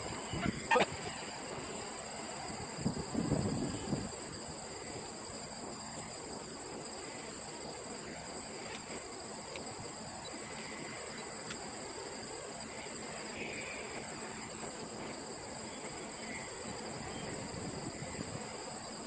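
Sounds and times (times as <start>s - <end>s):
wind on microphone: 0.0s - 1.4s, 2.4s - 4.7s, 16.9s - 18.7s
insect chorus: 0.0s - 19.0s
faint ticks: 6.8s - 11.8s.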